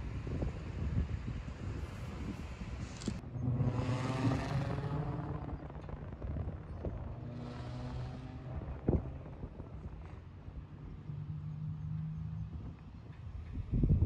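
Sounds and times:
vehicle engine running: 0:03.0 - 0:13.2.

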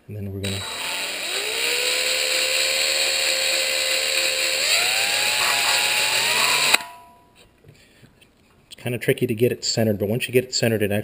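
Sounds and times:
power drill motor whine: 0:00.4 - 0:06.9.

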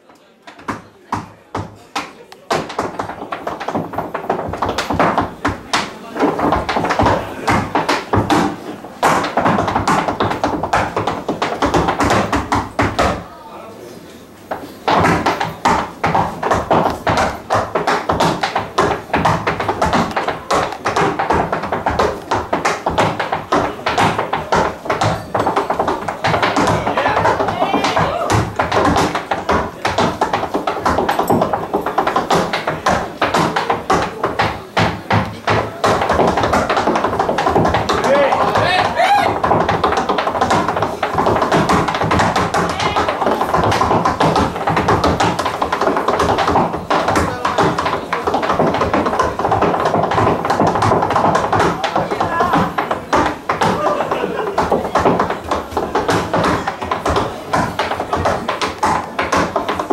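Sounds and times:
tap shoes on wooden floor: 0:00.0 - 0:13.3, 0:14.5 - 0:59.9.

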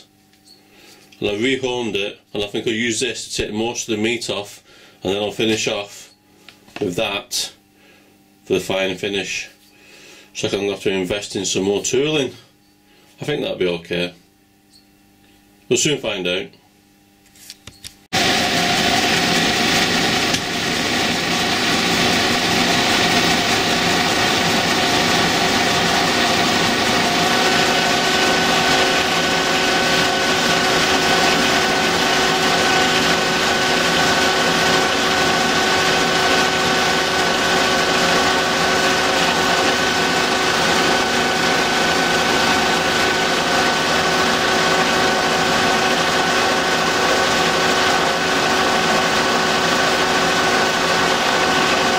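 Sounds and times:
metal lathe cutting steel: 0:18.2 - 0:51.9.

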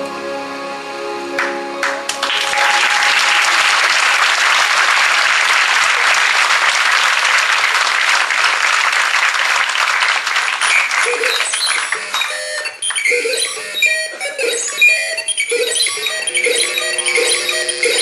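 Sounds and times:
music: 0:00.0 - 0:04.0, 0:12.2 - 0:18.0
audience applauding: 0:01.4 - 0:13.1.

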